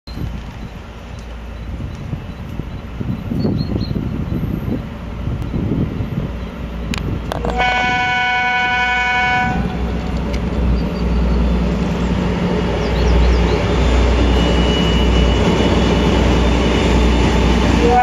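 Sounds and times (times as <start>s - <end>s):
diesel engine drone: 4.2s - 18.0s
train horn blast: 7.4s - 9.9s, 17.8s - 18.0s.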